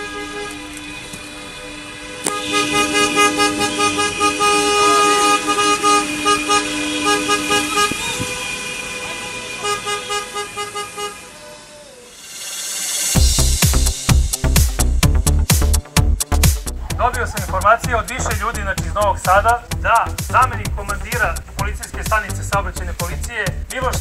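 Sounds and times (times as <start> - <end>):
car horns honking: 0.0 - 12.3.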